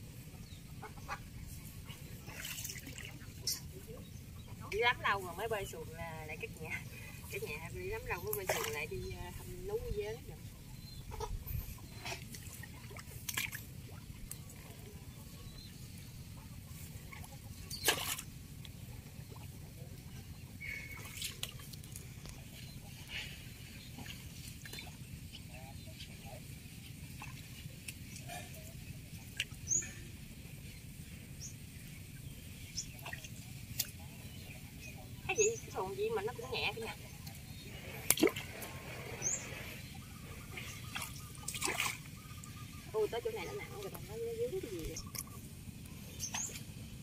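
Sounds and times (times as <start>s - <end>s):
water splashes and drips: 2.2s - 3.6s, 12.1s - 14.4s, 17.7s - 18.3s, 20.9s - 22.0s, 29.2s - 29.7s, 32.9s - 34.0s, 38.1s - 38.7s, 40.9s - 42.6s
paddle dipping into water: 37.6s - 39.3s, 40.5s - 42.6s.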